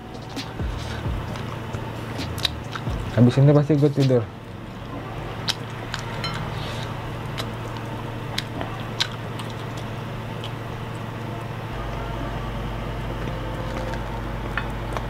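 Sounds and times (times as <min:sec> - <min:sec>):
steady low hum: 0:00.0 - 0:15.0
person chewing: 0:00.1 - 0:03.2, 0:04.4 - 0:12.0, 0:13.1 - 0:15.0
meat tearing: 0:00.8 - 0:03.2, 0:05.2 - 0:11.1, 0:13.2 - 0:15.0
mouth clicks and smacks: 0:01.2 - 0:03.2.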